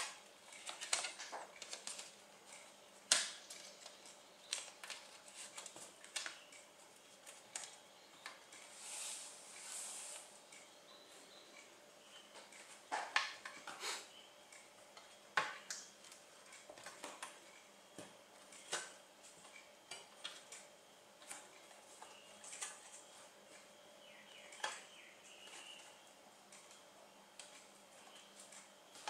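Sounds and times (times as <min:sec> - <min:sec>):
plastic clips clicking and snapping: 0:00.0 - 0:06.6.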